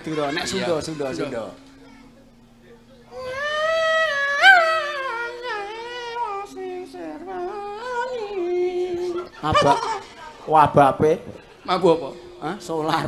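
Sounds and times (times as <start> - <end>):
high voice singing: 3.1 - 10.0.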